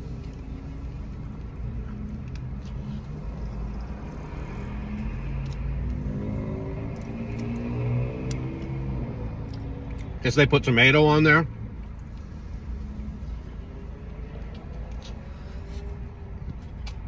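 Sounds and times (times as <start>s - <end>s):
person chewing: 0.0s - 6.1s, 6.9s - 8.8s, 14.3s - 17.0s.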